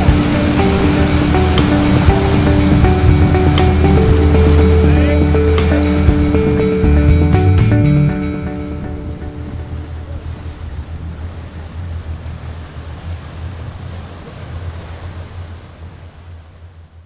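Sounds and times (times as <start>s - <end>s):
wind buffeting microphone: 0.0s - 7.5s
water rushing past boat: 0.0s - 17.0s.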